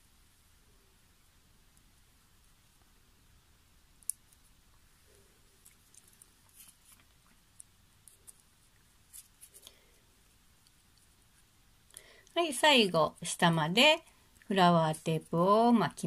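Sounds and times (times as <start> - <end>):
fingers handling paper cord and tape: 5.6 - 9.7.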